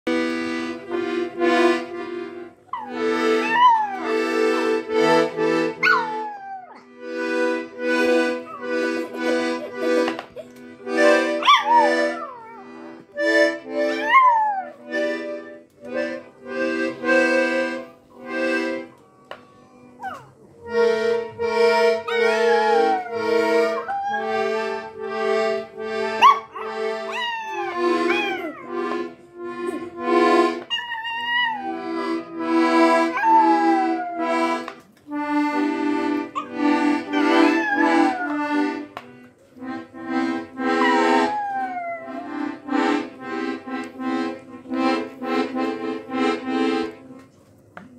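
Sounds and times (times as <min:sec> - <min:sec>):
dog howling: 0:02.8 - 0:04.2, 0:05.8 - 0:06.9, 0:11.5 - 0:12.7, 0:14.0 - 0:14.8, 0:22.1 - 0:24.6, 0:26.2 - 0:28.7, 0:30.7 - 0:32.0, 0:33.1 - 0:34.6, 0:37.2 - 0:38.5, 0:40.8 - 0:42.3.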